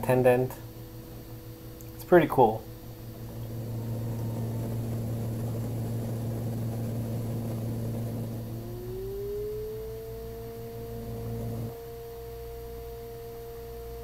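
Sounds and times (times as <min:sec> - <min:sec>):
propeller engines droning: 0:02.2 - 0:12.0
rising tone: 0:03.2 - 0:13.1.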